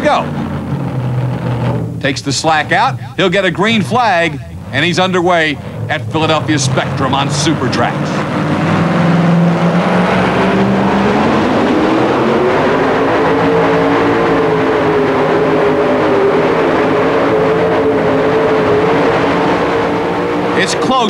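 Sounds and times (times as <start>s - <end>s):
supercharged engine at full load: 0.0s - 21.0s.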